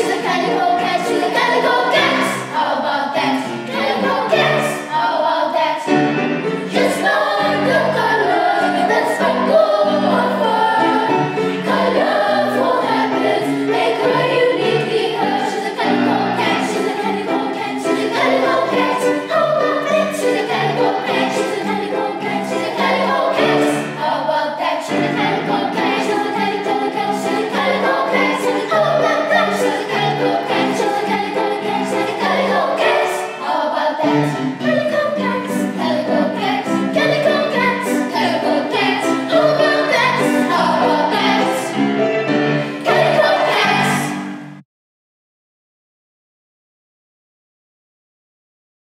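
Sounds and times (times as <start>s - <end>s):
girls choir singing: 0.0s - 44.6s.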